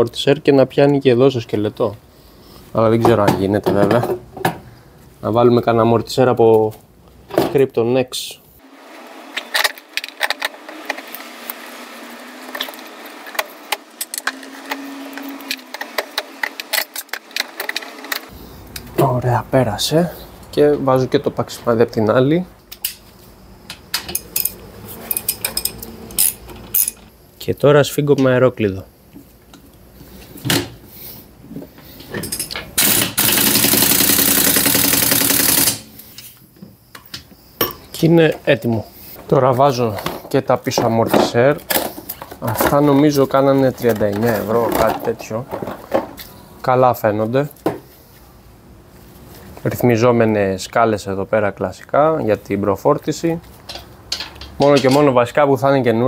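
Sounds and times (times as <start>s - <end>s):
light metal clinks and knocks: 53.6s - 55.2s.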